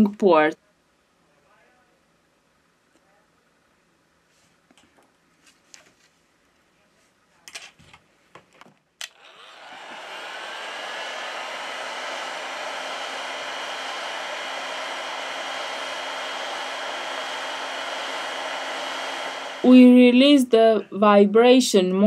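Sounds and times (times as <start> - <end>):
hot air gun blowing: 9.0 - 19.9
fan whine: 9.0 - 20.8.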